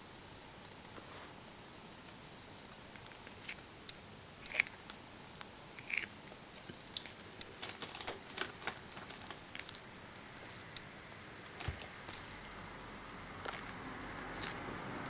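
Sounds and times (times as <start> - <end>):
tortoise crunching bean sprouts: 3.1 - 5.0, 5.7 - 15.0.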